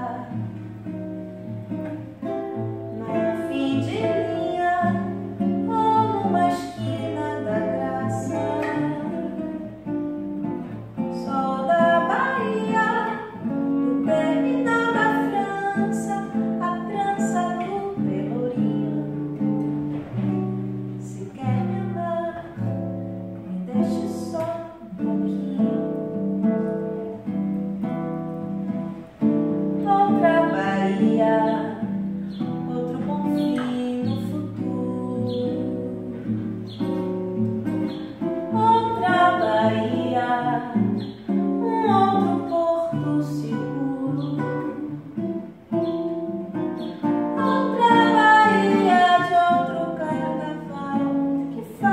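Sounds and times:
woman singing: 0:00.0 - 0:00.8, 0:01.6 - 0:51.9
plucked acoustic guitar: 0:00.0 - 0:51.9.

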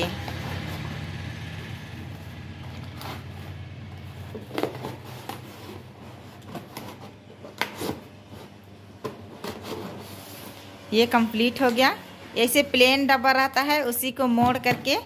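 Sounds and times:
paperboard box rustling and clicking: 0:02.7 - 0:08.4.

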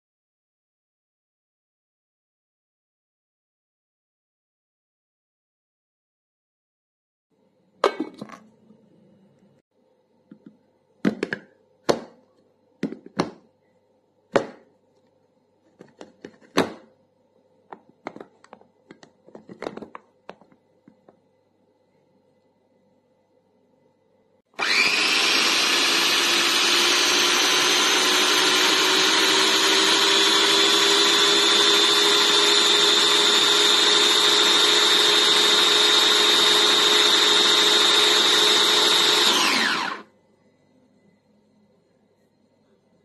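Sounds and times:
electric food chopper motor whine: 0:24.6 - 0:40.1.

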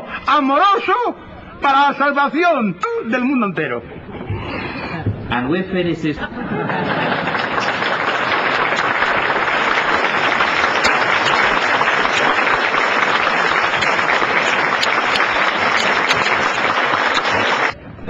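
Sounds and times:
audience applauding: 0:06.7 - 0:17.8.

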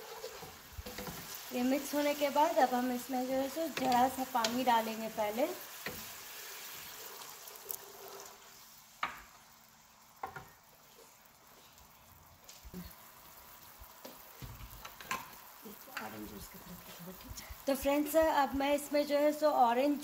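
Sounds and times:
wooden spatula stirring: 0:00.0 - 0:08.7
sauce sizzling in pan: 0:00.0 - 0:20.0.

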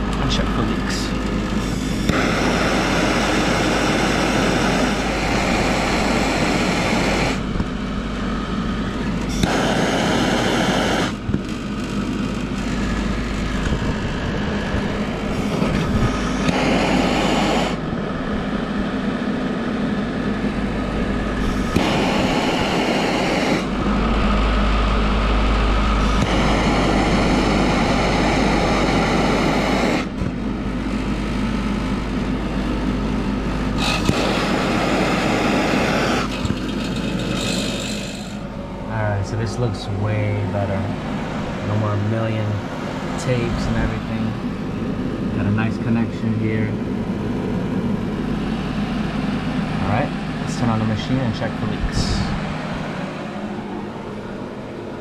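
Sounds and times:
gas torch hissing: 0:00.3 - 0:17.8, 0:20.6 - 0:24.0, 0:26.0 - 0:30.4, 0:33.6 - 0:44.4.

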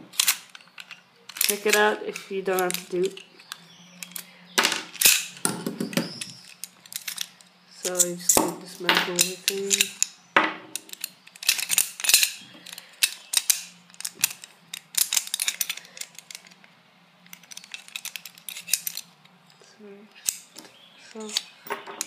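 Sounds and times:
pistol parts clicking and rattling: 0:00.0 - 0:22.0
parts set down on wooden table: 0:04.6 - 0:06.2, 0:10.4 - 0:10.9, 0:21.7 - 0:22.0.

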